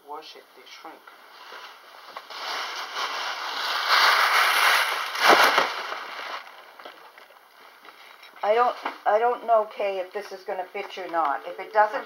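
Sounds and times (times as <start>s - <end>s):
gift bag rustling and crinkling: 1.3s - 9.1s.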